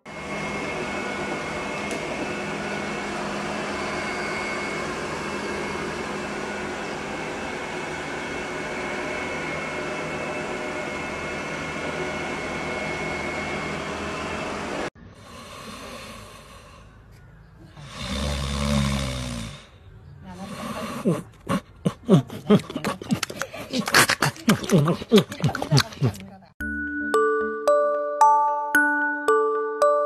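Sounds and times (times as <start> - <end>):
robot vacuum cleaner running: 0.0 - 16.6.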